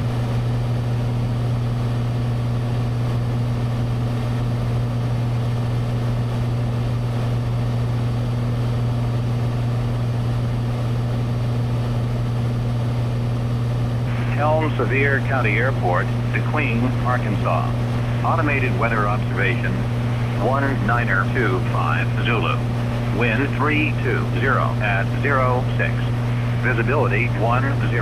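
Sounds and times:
aircraft engine and propeller droning: 0.0s - 28.0s.

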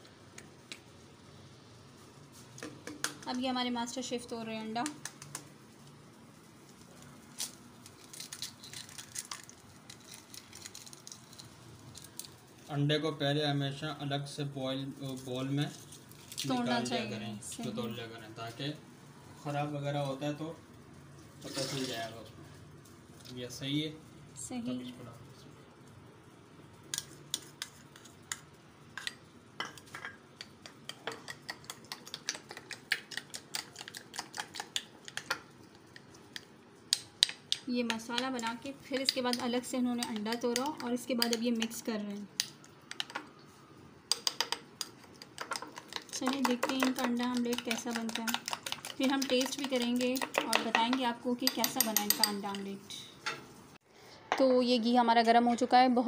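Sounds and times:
eggshell cracking: 7.4s - 12.4s, 44.1s - 50.7s.

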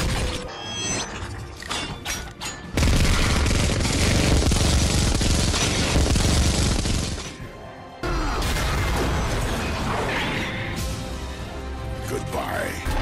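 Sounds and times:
music: 0.0s - 2.8s, 5.6s - 13.0s.

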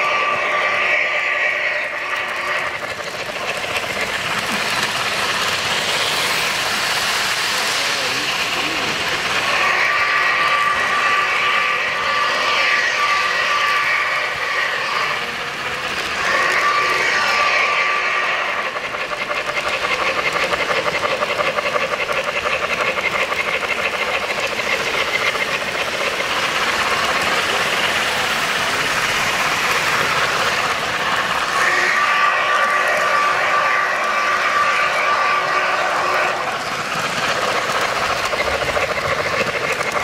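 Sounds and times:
model train running: 0.0s - 40.0s
rhythmic wheel clatter: 0.0s - 40.0s.

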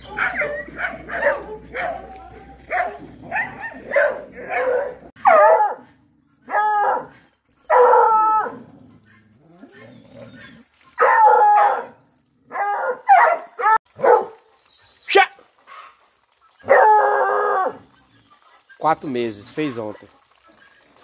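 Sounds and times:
hound baying: 0.0s - 14.4s.

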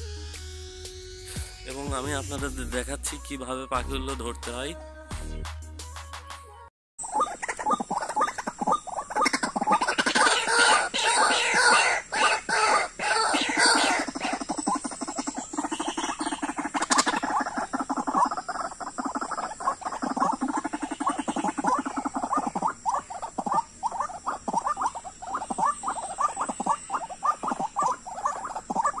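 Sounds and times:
waterhens calling: 7.0s - 29.0s.

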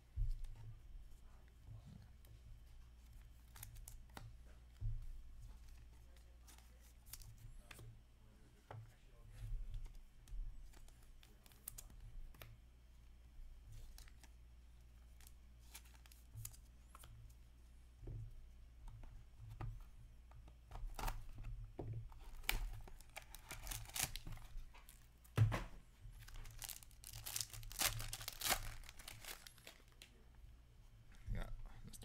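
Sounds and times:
cardboard and plastic tearing: 22.2s - 24.5s, 26.2s - 30.0s.

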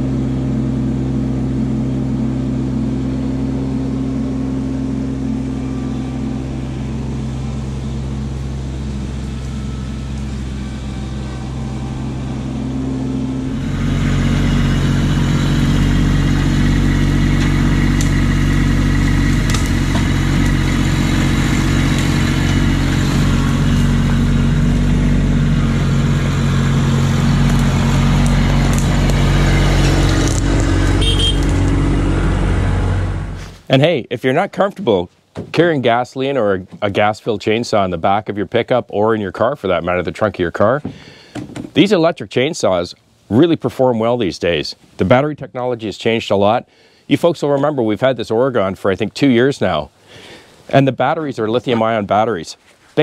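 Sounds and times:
vehicle engine running: 0.0s - 35.0s.

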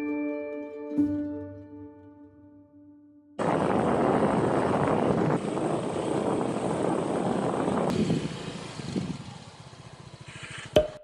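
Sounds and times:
wind rumble on microphone: 3.4s - 9.6s
vehicle engine running: 3.4s - 11.0s.

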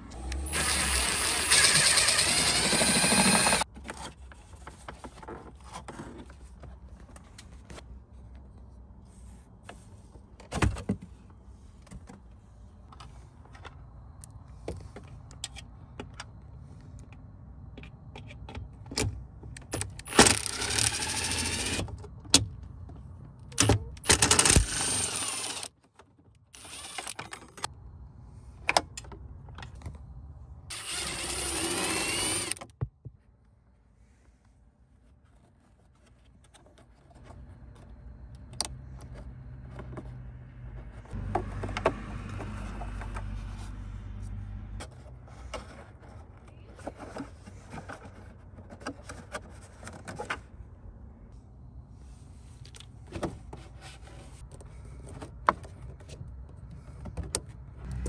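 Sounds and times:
electric screwdriver running: 0.2s - 3.6s, 20.1s - 21.8s, 24.0s - 25.7s, 26.6s - 27.2s, 30.7s - 32.6s
screws and plastic parts rattling: 0.3s - 7.3s, 17.8s - 22.7s, 23.4s - 27.7s.

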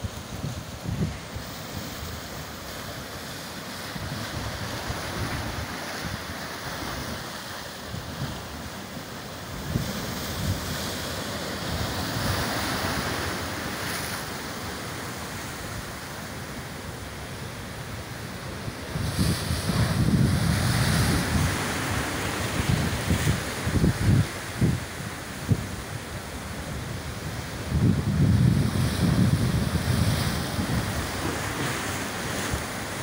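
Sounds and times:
wind buffeting microphone: 0.0s - 2.6s, 18.8s - 33.0s
surf breaking on rocks: 27.7s - 33.0s.

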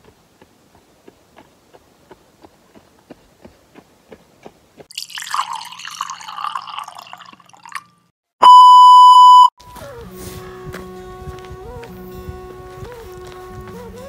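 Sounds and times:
footsteps running on dirt road: 0.0s - 4.9s, 9.7s - 14.0s
high test tone beep: 8.4s - 9.5s.

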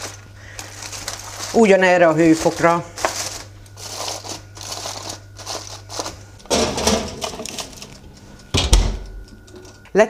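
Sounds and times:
aluminium foil crinkling: 0.0s - 8.5s.

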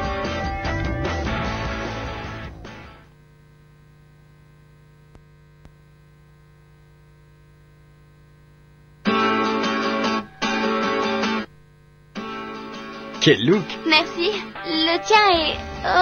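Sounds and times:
guitar music: 0.0s - 3.1s, 9.0s - 11.5s, 12.1s - 16.0s
electrical hum: 0.2s - 14.5s
faint tape hiss: 1.2s - 16.0s.

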